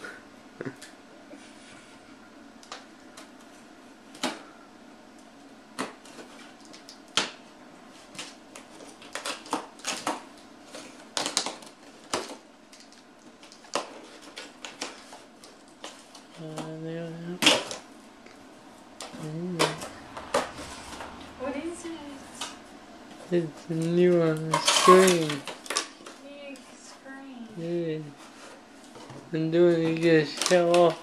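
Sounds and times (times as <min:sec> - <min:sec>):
packing tape cut: 0:08.1 - 0:16.2.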